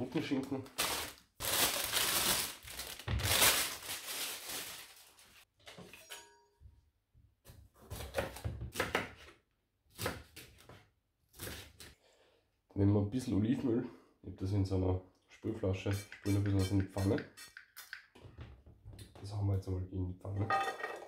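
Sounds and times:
plastic bag crinkling: 0:00.6 - 0:05.4
knife chopping on plastic board: 0:07.9 - 0:09.3, 0:09.9 - 0:10.8.

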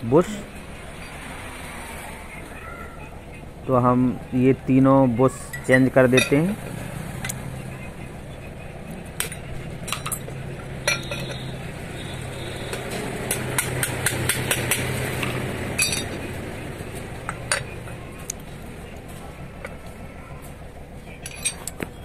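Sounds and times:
metal parts clinking and knocking: 0:05.5 - 0:06.5, 0:09.2 - 0:11.5, 0:13.3 - 0:16.3, 0:21.2 - 0:22.0.

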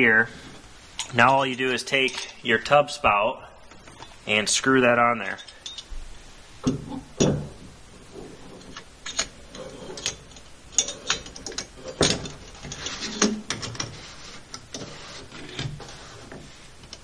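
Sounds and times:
rubbing: 0:12.6 - 0:16.8.

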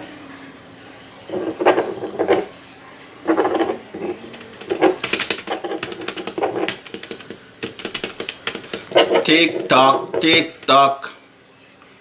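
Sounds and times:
pen scratching on paper: 0:03.3 - 0:09.9.

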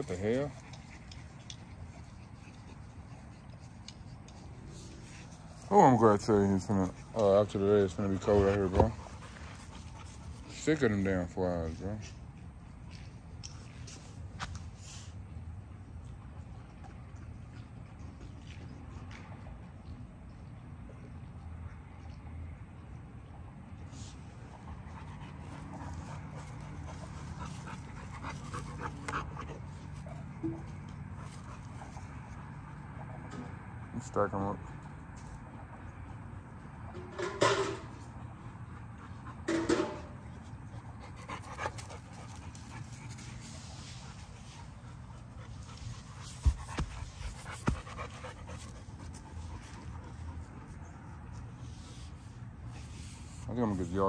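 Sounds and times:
dog panting: 0:00.0 - 0:12.2, 0:23.9 - 0:33.4, 0:38.2 - 0:54.0.

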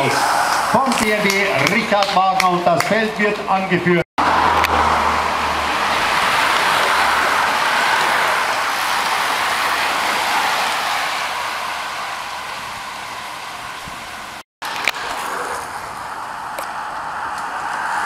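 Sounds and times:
street background: 0:00.0 - 0:18.0
bicycles sweeping past: 0:04.2 - 0:18.0.

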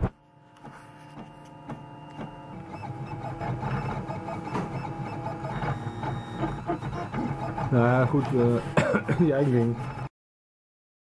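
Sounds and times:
stepper motors whining: 0:00.4 - 0:08.8.

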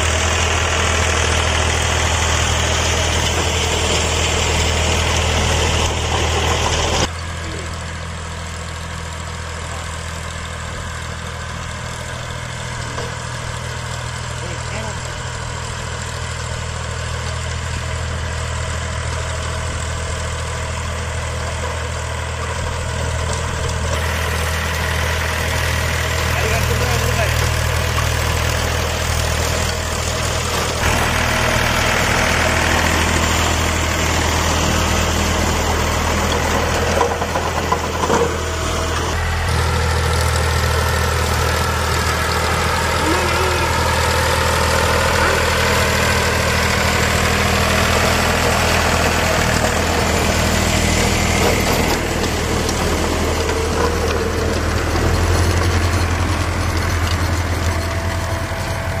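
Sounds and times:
tractor diesel engine running: 0:00.0 - 0:59.0
rotavator blades churning soil: 0:12.0 - 0:59.0.

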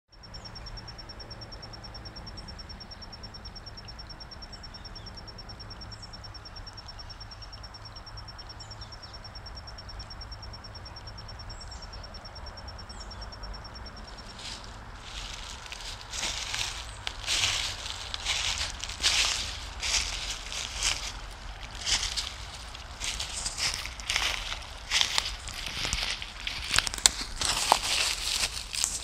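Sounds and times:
insect chirping: 0:00.1 - 0:29.0
bird chirps: 0:00.2 - 0:29.0
stream rushing: 0:14.1 - 0:29.0.

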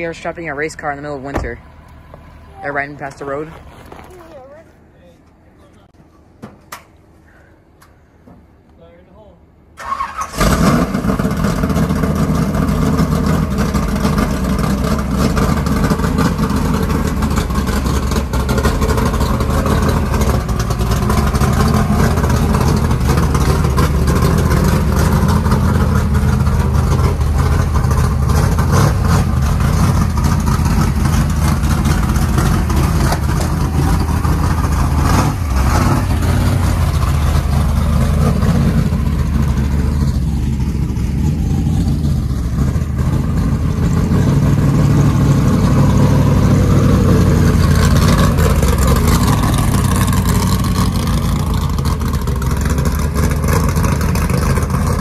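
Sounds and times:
race car engine running: 0:10.0 - 0:55.0.

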